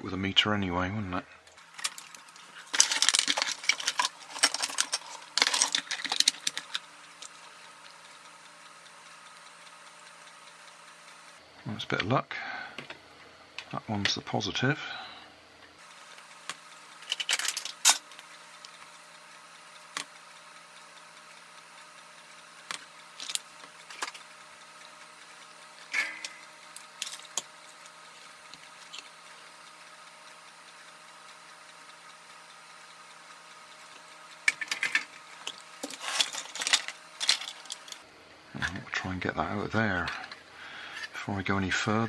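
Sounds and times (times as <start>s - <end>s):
faint hum: 0.0s - 42.0s
plastic parts clicking and clattering: 1.6s - 7.4s, 16.5s - 18.1s, 22.7s - 24.3s, 25.9s - 28.0s, 34.4s - 38.0s.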